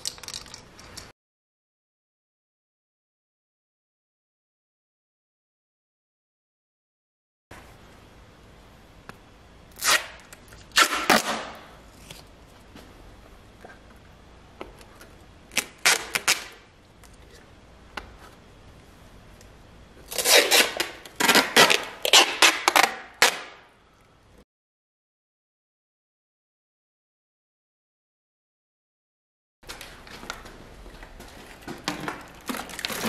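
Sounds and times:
plastic bottles crinkling: 31.5 - 33.0.

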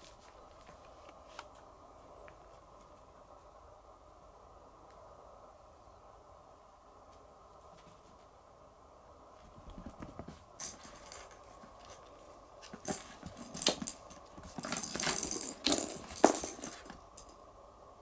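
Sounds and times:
faint room hum: 0.0 - 18.0
cats rustling on bedding: 9.4 - 17.3.

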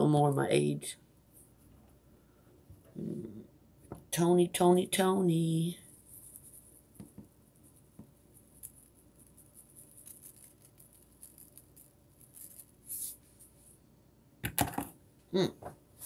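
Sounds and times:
seasoning container rattling: 8.5 - 12.8.

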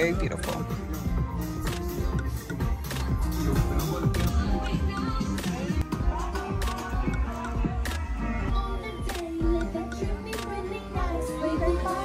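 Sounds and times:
music with bass line: 0.0 - 12.0.

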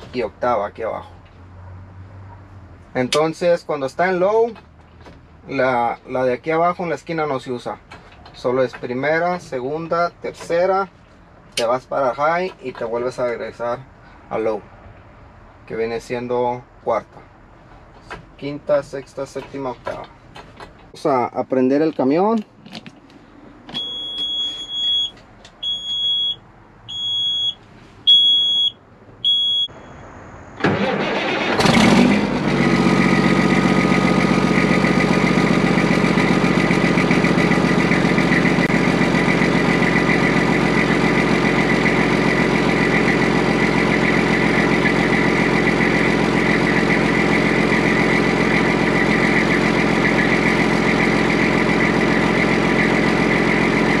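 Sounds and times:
warning buzzer beeping: 23.8 - 29.8
diesel engine idling: 30.6 - 54.0.

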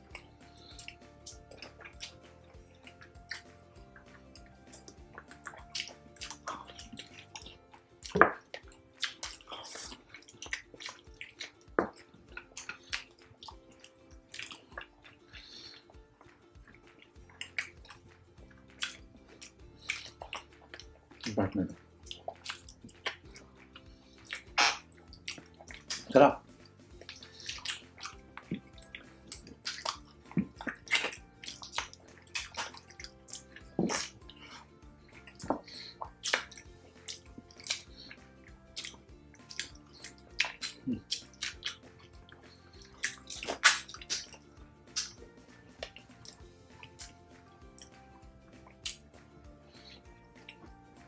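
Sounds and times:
faint background music: 0.0 - 51.0
wet chewing and mouth clicks: 0.0 - 51.0.

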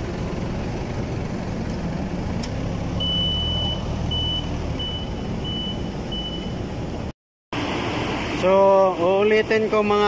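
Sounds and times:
vehicle warning beeper: 3.0 - 6.7.

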